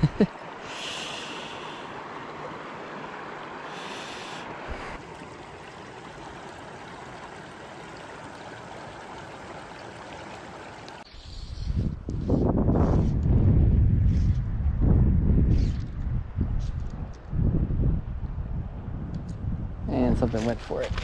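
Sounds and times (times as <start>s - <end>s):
creek water over rocks: 0.3s - 11.1s, 20.0s - 21.0s.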